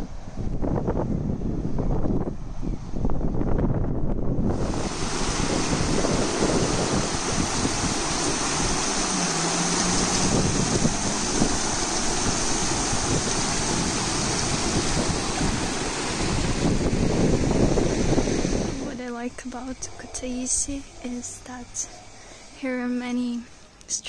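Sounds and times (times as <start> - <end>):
river rapids rushing over rocks: 4.6 - 16.4.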